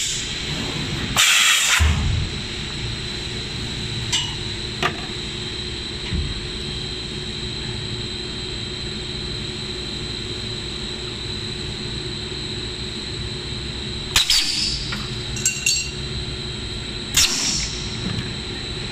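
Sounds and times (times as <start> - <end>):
machine hum and whine: 0.0 - 18.9.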